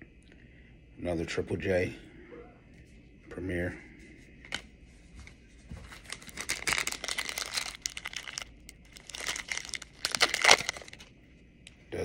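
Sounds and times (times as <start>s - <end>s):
foil wrapper tearing and crinkling: 6.0s - 11.1s.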